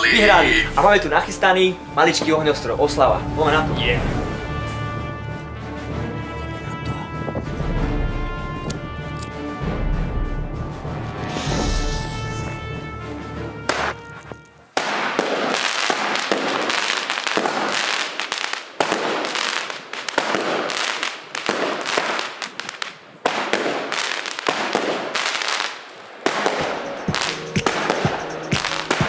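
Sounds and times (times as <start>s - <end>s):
fireworks crackling: 0.0s - 2.4s, 13.6s - 29.0s
fireworks launches and bursts: 13.7s - 29.0s
sharp firework pops: 13.7s - 29.0s.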